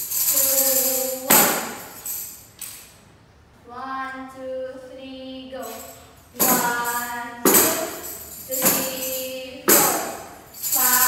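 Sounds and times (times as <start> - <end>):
tambourine jingle crashes: 0.0 - 2.9, 5.6 - 11.0.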